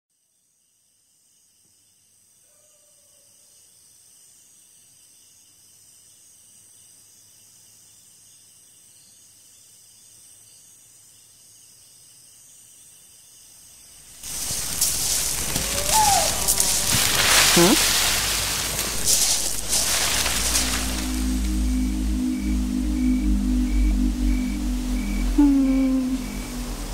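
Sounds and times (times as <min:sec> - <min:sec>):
insect chorus: 0:00.2 - 0:26.9
loud rushing noise: 0:14.2 - 0:26.9.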